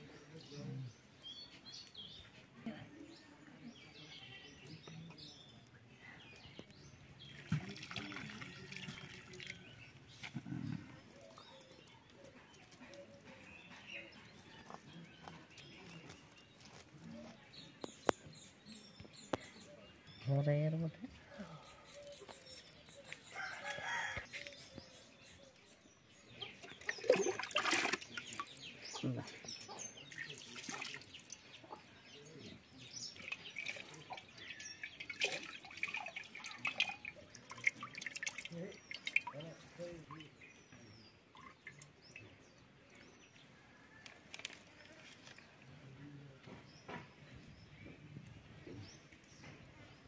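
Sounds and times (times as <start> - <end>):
small birds chirping: 0.0 - 50.0
water splashing into metal pan: 7.3 - 9.6, 26.8 - 28.5, 30.1 - 31.4, 33.2 - 39.5.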